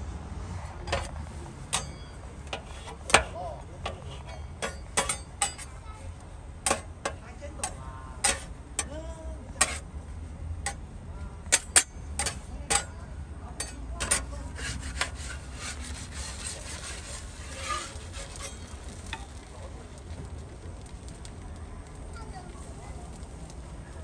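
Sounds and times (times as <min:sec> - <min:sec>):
spatulas scraping griddle: 0:00.5 - 0:09.9, 0:10.6 - 0:19.4
metal spatula clanking on griddle: 0:00.8 - 0:05.9, 0:06.6 - 0:09.0, 0:09.6 - 0:09.9, 0:10.6 - 0:19.2.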